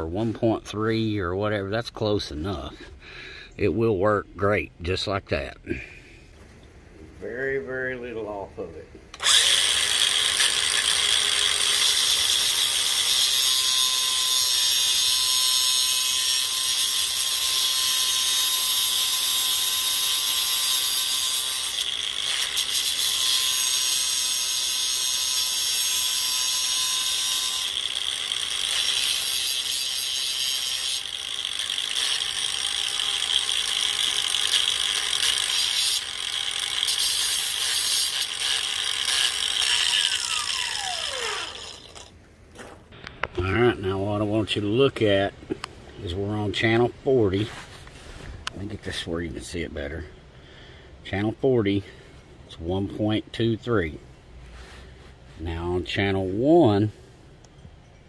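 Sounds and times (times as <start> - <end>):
angle grinder grinding steel: 9.2 - 42.2.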